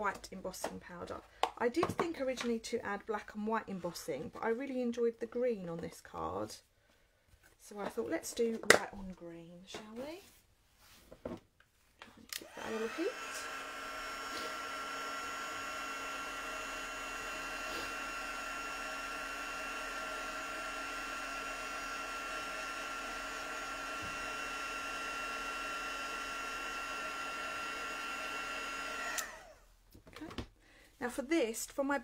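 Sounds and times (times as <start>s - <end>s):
heat tool blowing hum: 12.3s - 29.6s.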